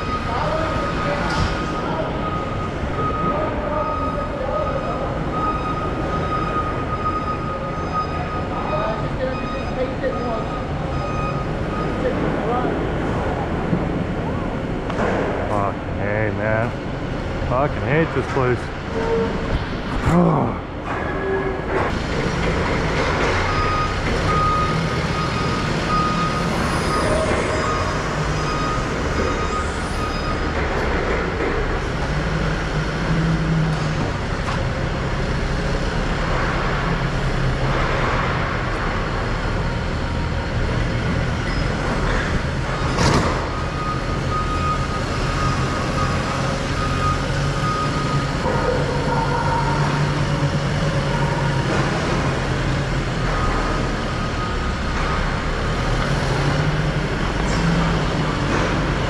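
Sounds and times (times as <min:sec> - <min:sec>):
forklift backup alarm beeping: 0:00.0 - 0:13.4, 0:22.5 - 0:37.9, 0:41.4 - 0:59.0.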